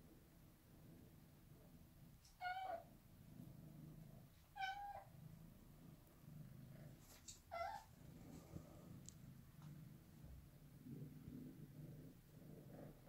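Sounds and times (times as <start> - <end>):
cat meowing: 2.4 - 2.8, 4.6 - 5.1, 7.5 - 7.9.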